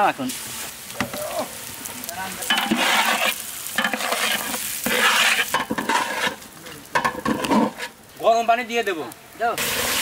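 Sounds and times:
rice sizzling: 0.0s - 10.0s
metal spatula scraping pot: 2.5s - 6.4s, 7.0s - 8.0s.

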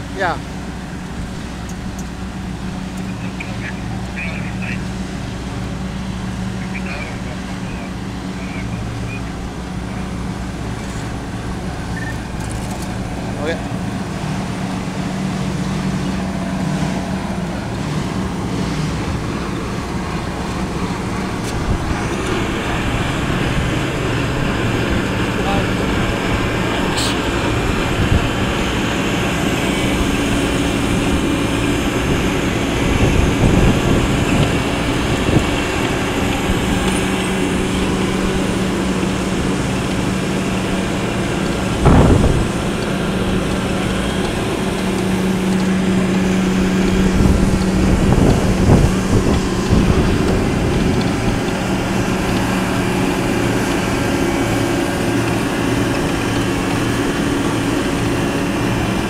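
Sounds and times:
diesel engine and hydraulics hum: 0.0s - 59.0s
machinery clattering: 1.0s - 59.0s.

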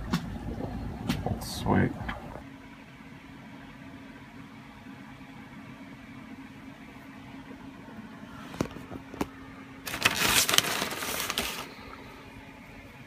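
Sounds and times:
steady low hum: 0.0s - 13.0s
plastic snack bag crinkling: 9.8s - 11.9s.

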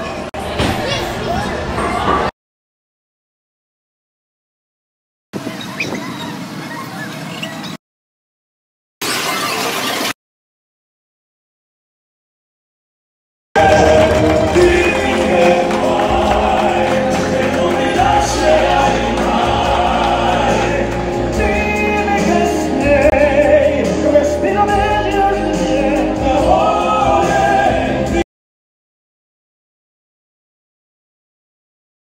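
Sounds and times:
singers and choir with music: 13.6s - 28.2s.

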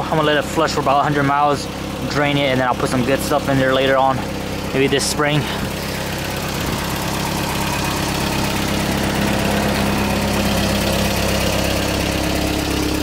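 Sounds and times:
pickup engine idling: 0.0s - 13.0s.

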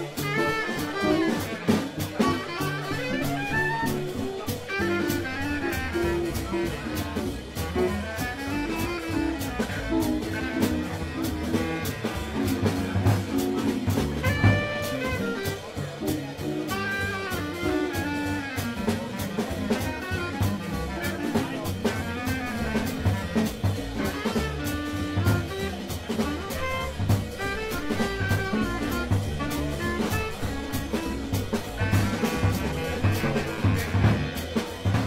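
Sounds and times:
drum kit cymbals: 0.0s - 35.0s
horns: 0.0s - 35.0s
piano: 0.0s - 35.0s.

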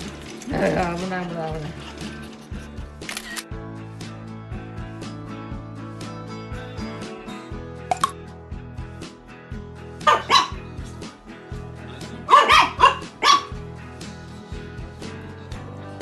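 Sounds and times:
background music: 0.0s - 16.0s
small dog barking: 10.0s - 10.6s, 12.3s - 13.5s.

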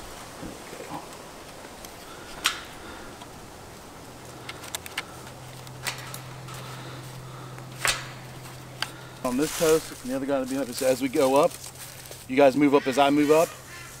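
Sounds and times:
steady low hum: 0.0s - 12.9s
light rustling: 0.0s - 14.0s
sharp clicks: 4.2s - 6.6s.

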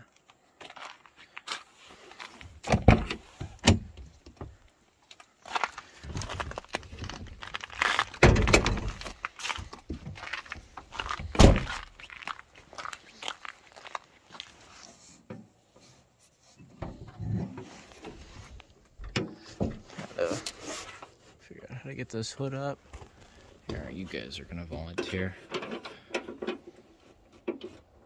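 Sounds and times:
fumbling inside car: 16.6s - 21.0s.

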